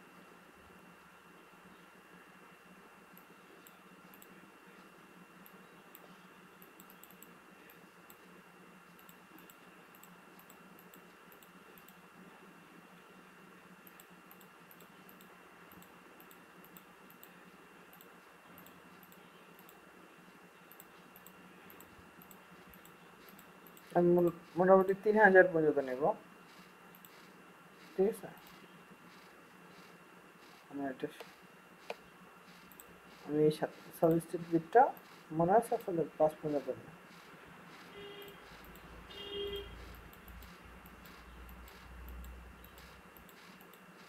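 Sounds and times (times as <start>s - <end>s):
electrical hum and hiss: 0.0s - 44.0s
computer mouse clicks: 3.2s - 4.3s, 5.4s - 8.2s, 8.9s - 12.0s, 13.8s - 19.8s, 20.7s - 24.6s, 26.5s - 35.9s, 37.1s - 38.9s, 39.8s - 44.0s.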